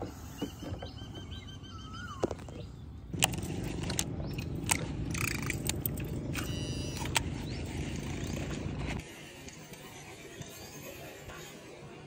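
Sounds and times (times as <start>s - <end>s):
boat motor rumbling: 0.0s - 9.0s
sharp clicks and rattles: 3.1s - 9.0s.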